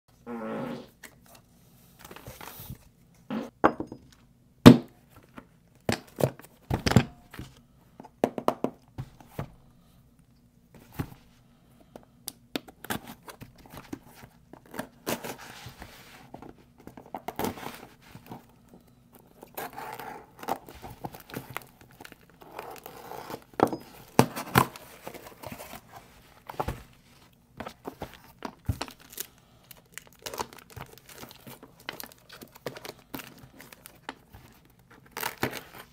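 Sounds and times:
packing material crinkling: 19.2 - 35.9.

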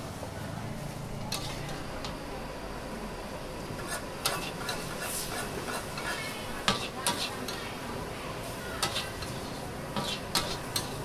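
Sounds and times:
spatula clanking against wok: 5.7 - 7.6, 8.8 - 11.0.

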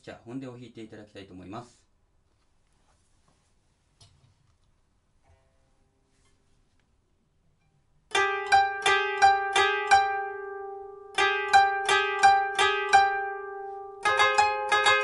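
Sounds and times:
plucked zither notes: 7.6 - 15.0.

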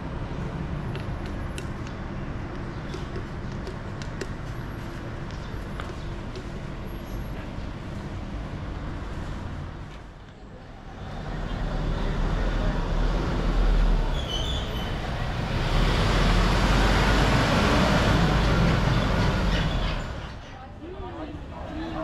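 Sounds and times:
road traffic rumble and hiss: 0.0 - 22.0
brief high squeak: 14.1 - 15.0.

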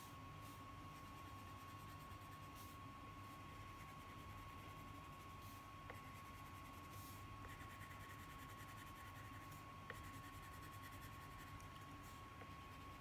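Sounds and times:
crayon scratching on paper: 3.8 - 13.0.

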